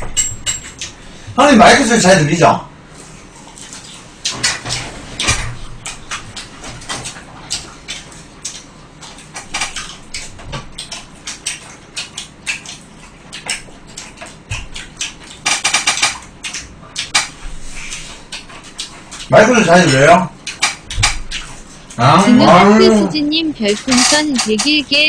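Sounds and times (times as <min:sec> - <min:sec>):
chopsticks and dishes clicking: 0:23.7 - 0:24.8.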